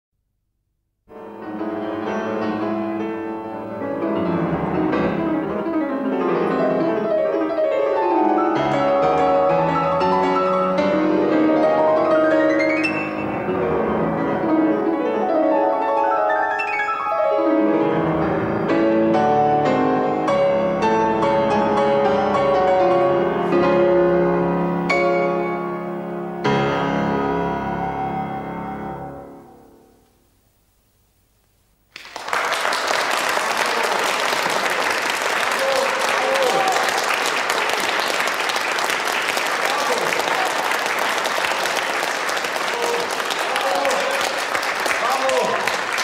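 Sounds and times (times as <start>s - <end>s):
grand piano classical solo: 1.1s - 30.0s.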